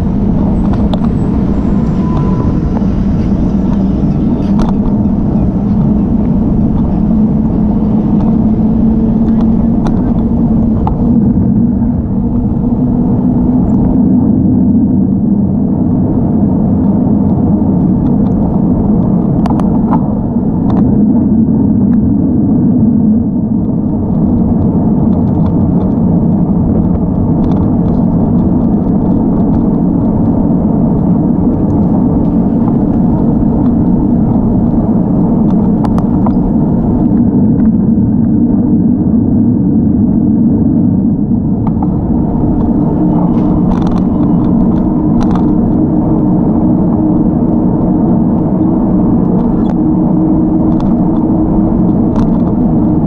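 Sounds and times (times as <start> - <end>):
road rumble: 0.0 - 53.0
wind on microphone: 0.0 - 53.0
faint clicks and knocks: 50.6 - 53.0.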